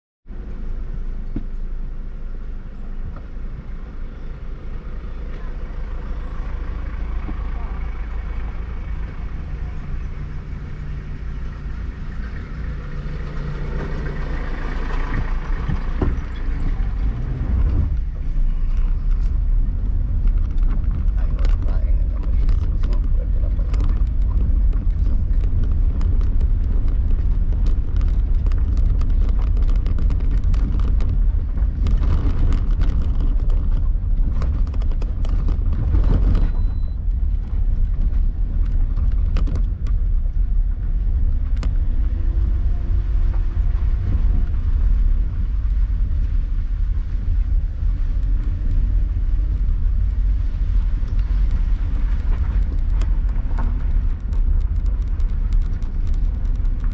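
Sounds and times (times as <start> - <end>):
engine and tyres rumbling: 0.2 - 56.9
stones knocking under wheels: 17.7 - 40.2, 48.2 - 56.9.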